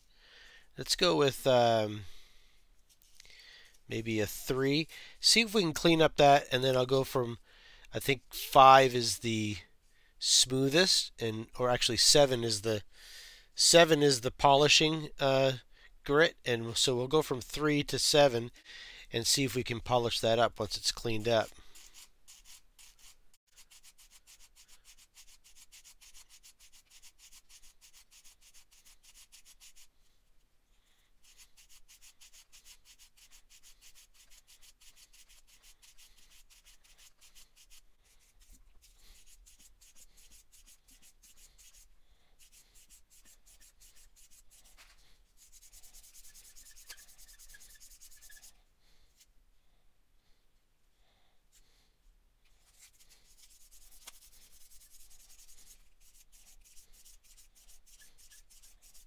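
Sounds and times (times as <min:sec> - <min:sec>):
nail file rubbing on plastic: 0:20.6 - 0:29.9, 0:31.2 - 0:48.6, 0:52.6 - 0:59.0.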